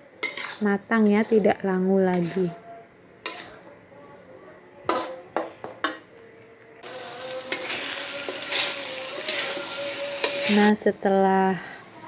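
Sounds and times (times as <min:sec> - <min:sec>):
paste sizzling in wok: 0:00.2 - 0:00.8, 0:06.8 - 0:10.9
metal spatula scraping wok: 0:00.2 - 0:02.6, 0:03.2 - 0:03.7, 0:06.8 - 0:10.9.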